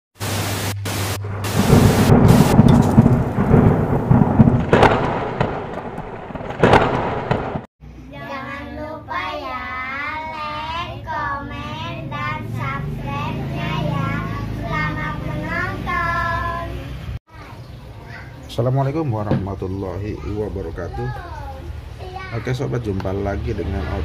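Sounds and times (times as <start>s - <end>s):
thunder cracks: 0.2s - 7.7s
rolling thunder rumble: 0.6s - 7.7s
children singing: 8.2s - 17.0s.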